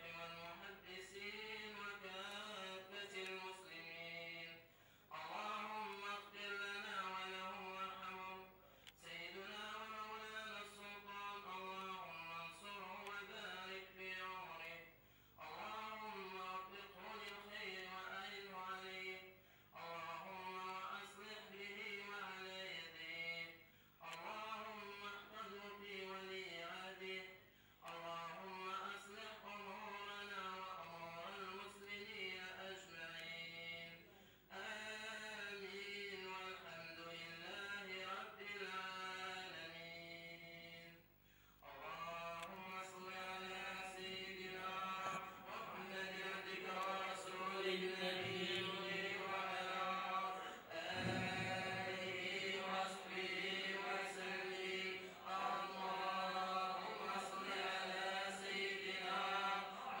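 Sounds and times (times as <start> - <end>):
male voices chanting: 41.7 - 60.0.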